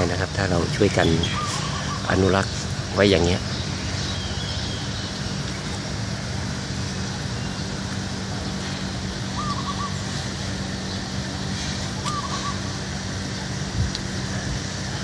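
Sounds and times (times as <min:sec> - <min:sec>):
low hum: 0:00.0 - 0:15.0
bird warbled call: 0:00.8 - 0:05.9, 0:07.0 - 0:13.6.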